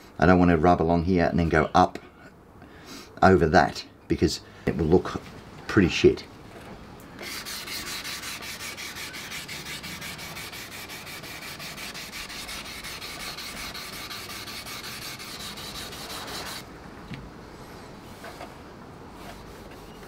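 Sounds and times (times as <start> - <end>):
sandpaper rasping on plastic: 7.2 - 16.6, 19.2 - 20.0.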